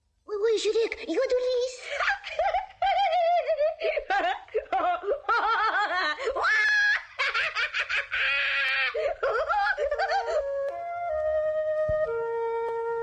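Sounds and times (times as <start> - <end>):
held music notes: 9.3 - 13.0.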